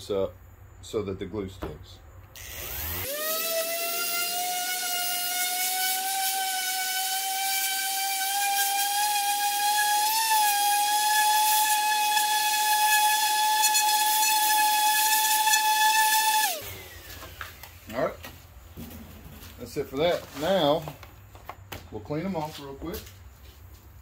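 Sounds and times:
palm sander motor whine: 2.3s - 17.9s.

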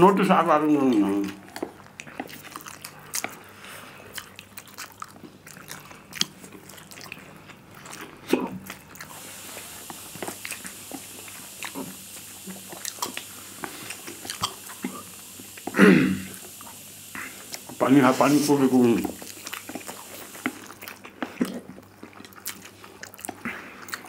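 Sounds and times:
chewing and slurping noodles: 0.8s - 17.8s, 18.9s - 24.0s
mouth clicks and smacks: 9.8s - 17.8s, 19.1s - 24.0s.

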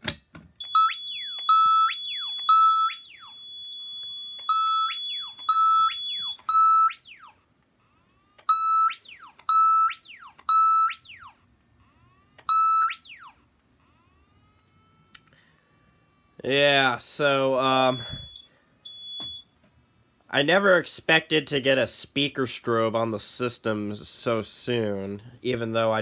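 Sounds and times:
fire alarm siren pulses: 0.6s - 16.6s, 17.3s - 19.5s
thin steady high tone: 0.6s - 19.5s.

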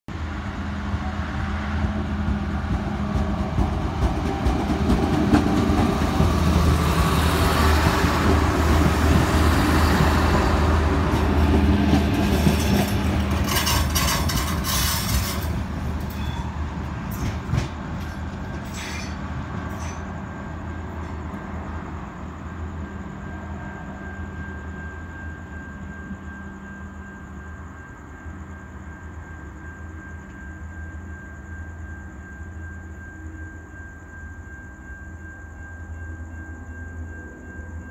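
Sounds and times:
diesel railcar engines droning: 0.1s - 37.9s
wheels clicking over rail joints: 1.9s - 20.2s.

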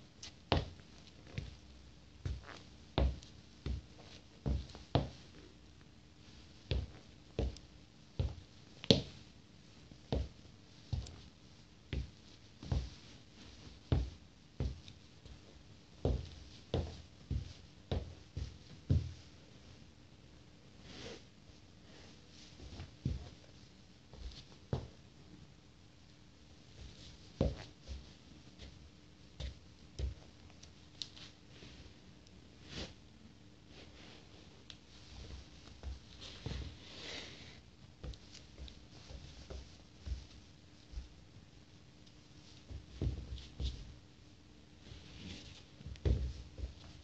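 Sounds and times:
sneakers stepping on wooden floor: 45.8s - 47.0s.

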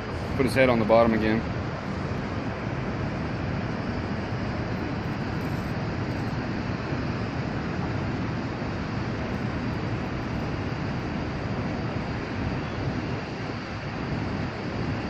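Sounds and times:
wind and water around boat: 0.0s - 15.0s.

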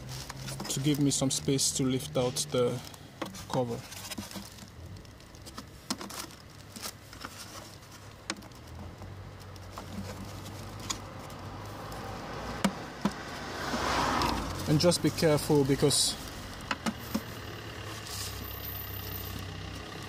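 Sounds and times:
plastic clicks and taps: 16.6s - 17.3s.

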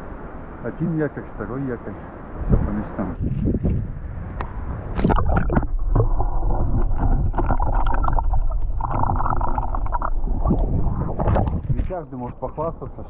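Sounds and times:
muffled underwater rush: 2.4s - 13.0s
splash into water: 4.9s - 12.0s.

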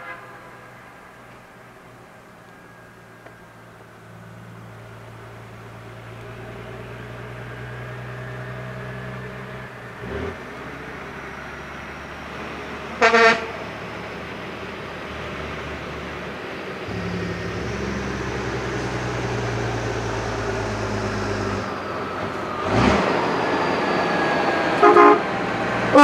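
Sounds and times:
air horn blast: 0.0s - 1.0s, 13.0s - 13.7s, 24.8s - 26.0s
truck diesel engines: 0.0s - 26.0s.

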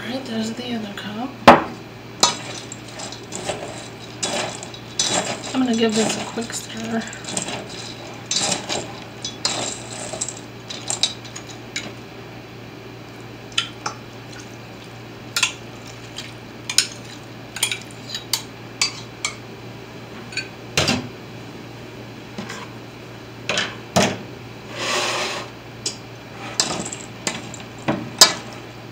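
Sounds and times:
metal spoon scraping steel bowl: 2.2s - 11.9s.

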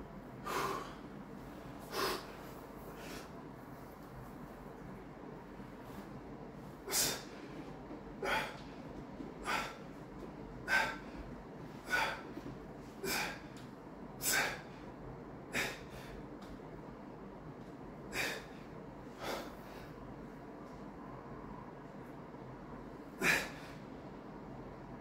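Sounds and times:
man breathing out hard: 0.4s - 1.1s, 13.0s - 13.5s, 18.1s - 20.0s.

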